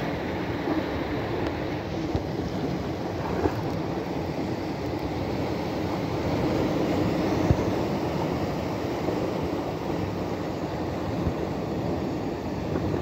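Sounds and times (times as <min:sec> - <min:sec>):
sea surf: 0:00.0 - 0:13.0
wind: 0:00.0 - 0:13.0.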